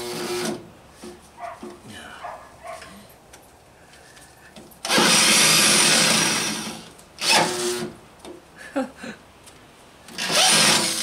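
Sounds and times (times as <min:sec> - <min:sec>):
power drill drilling: 0:00.0 - 0:00.6, 0:04.8 - 0:07.9, 0:10.1 - 0:11.0.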